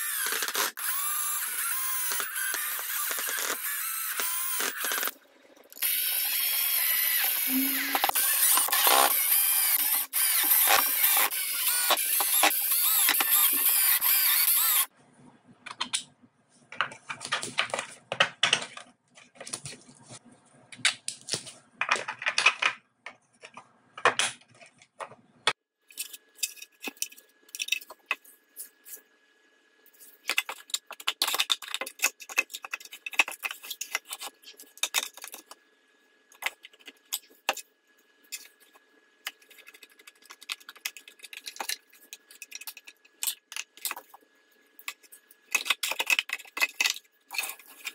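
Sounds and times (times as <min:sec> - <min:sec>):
cordless drill driving screws: 0:00.0 - 0:05.1, 0:05.8 - 0:14.9
plastic parts clicking and rattling: 0:16.7 - 0:19.8, 0:20.8 - 0:25.2, 0:25.9 - 0:28.2, 0:30.0 - 0:35.6, 0:36.3 - 0:44.2, 0:44.8 - 0:47.9.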